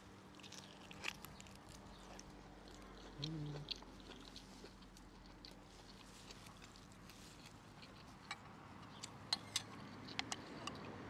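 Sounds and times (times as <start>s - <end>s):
clicks and taps of eating: 7.8s - 10.9s.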